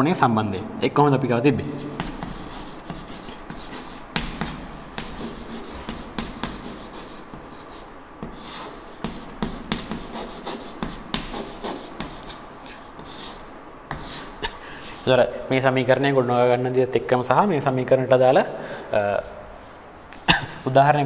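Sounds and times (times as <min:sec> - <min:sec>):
chalk tapping and scratching: 0:01.6 - 0:14.4.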